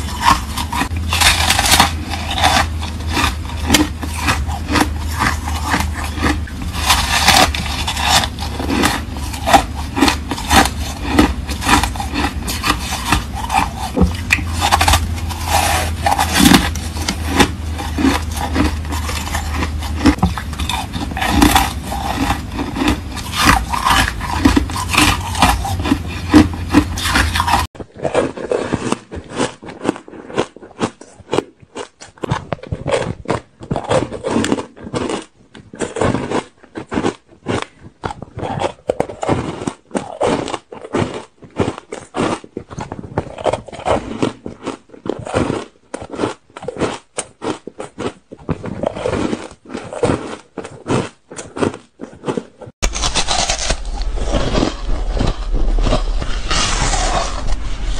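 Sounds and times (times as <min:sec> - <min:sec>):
steady low hum: 0:00.0 - 0:27.7, 0:52.8 - 0:57.9
ice being chewed: 0:00.0 - 0:57.9.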